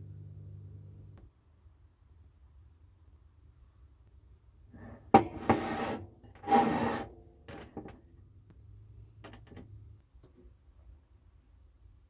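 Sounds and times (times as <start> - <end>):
metal scraping on wooden table: 4.8 - 8.0.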